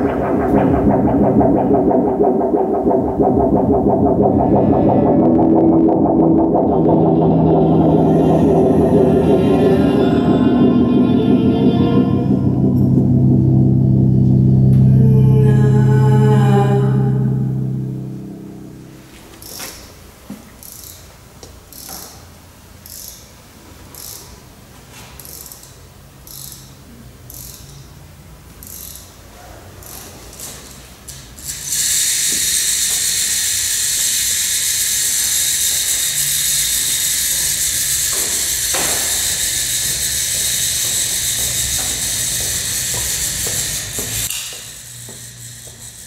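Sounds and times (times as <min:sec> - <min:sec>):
low steady hum: 0:00.0 - 0:20.2
rhythmic scraping strokes: 0:00.0 - 0:20.8, 0:31.4 - 0:46.0.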